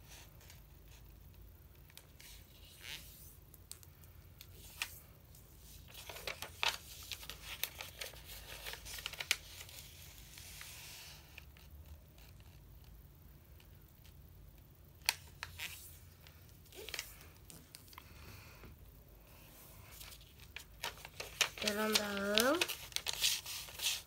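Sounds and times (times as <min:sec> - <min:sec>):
paper rustling and crinkling: 0:05.6 - 0:12.6, 0:19.8 - 0:24.0
sharp paper crackles: 0:05.8 - 0:10.7, 0:19.9 - 0:24.0.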